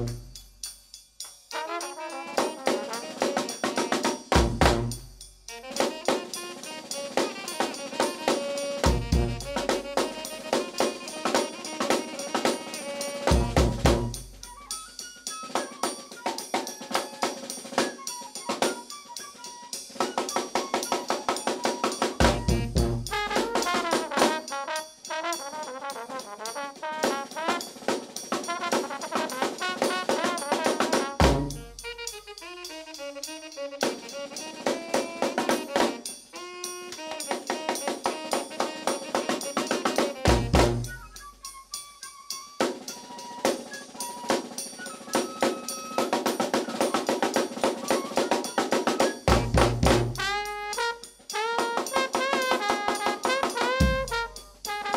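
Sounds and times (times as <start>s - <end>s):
brass band playing: 0.0s - 0.3s, 1.5s - 14.4s, 21.9s - 41.1s, 49.3s - 54.9s
snare and bass drum beat: 0.0s - 0.4s, 1.5s - 14.7s, 19.9s - 41.5s, 45.4s - 54.9s
deep low bass hits: 4.4s - 5.0s, 22.4s - 23.1s, 31.3s - 31.6s
heavy bass drum hit: 4.4s - 5.0s, 13.4s - 14.1s, 22.2s - 23.2s, 31.2s - 31.7s, 40.3s - 40.8s, 49.3s - 50.3s.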